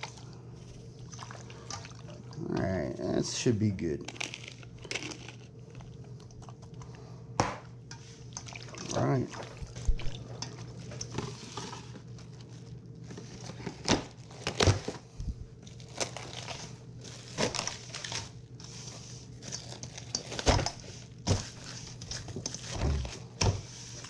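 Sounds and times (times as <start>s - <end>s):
plastic cling wrap crinkling: 4.0s - 6.1s, 10.6s - 15.0s, 15.6s - 23.3s.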